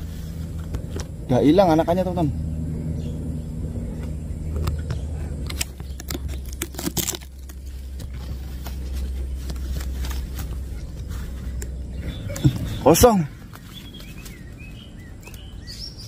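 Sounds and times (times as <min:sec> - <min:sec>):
low rumble: 0:00.0 - 0:16.0
handling clicks and rustles: 0:04.0 - 0:15.6.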